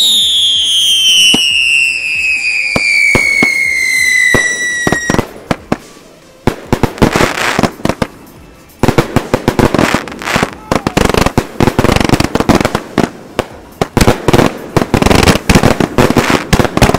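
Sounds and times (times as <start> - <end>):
firework whistle falling: 0.0 - 6.1
firework crackling: 0.0 - 16.9.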